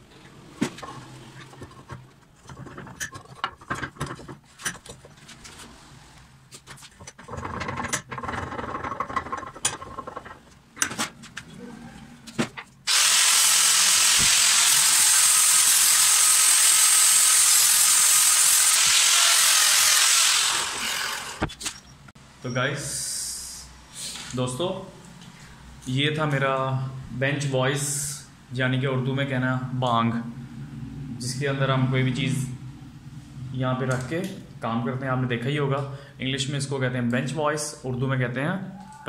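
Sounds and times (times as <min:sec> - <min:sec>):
metal clicks and knocks: 0:00.6 - 0:05.2, 0:06.6 - 0:11.5
angle grinder on steel: 0:12.9 - 0:21.5.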